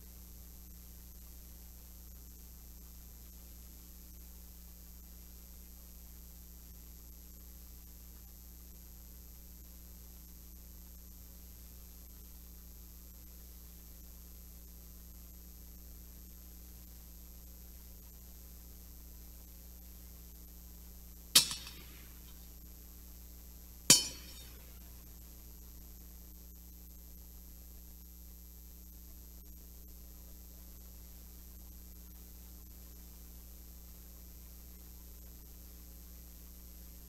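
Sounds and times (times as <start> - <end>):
metal vessels clinking: 21.4 - 22.1, 23.9 - 24.6.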